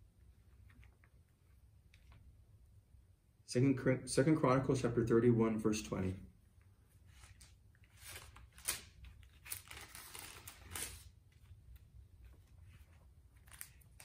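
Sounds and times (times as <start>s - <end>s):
book pages turning: 7.0s - 14.0s.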